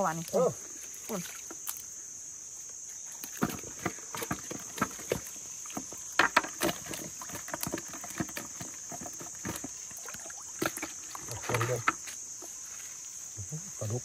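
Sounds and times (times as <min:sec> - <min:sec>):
high insect trill: 0:00.0 - 0:14.0
splashes in muddy water: 0:03.2 - 0:11.9.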